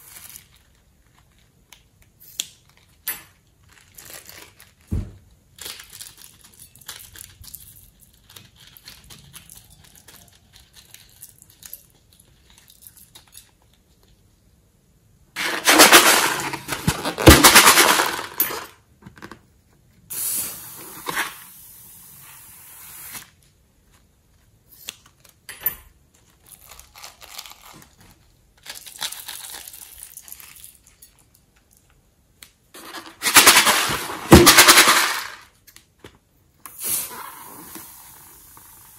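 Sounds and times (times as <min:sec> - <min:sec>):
plastic piping bag crinkling: 0:00.0 - 0:02.0, 0:02.6 - 0:12.7, 0:26.2 - 0:31.0.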